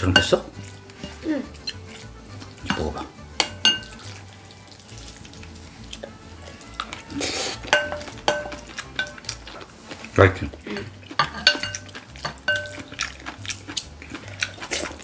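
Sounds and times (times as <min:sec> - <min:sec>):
spoons clinking against glass bowls: 0:00.0 - 0:04.3, 0:05.9 - 0:09.7, 0:10.7 - 0:13.4.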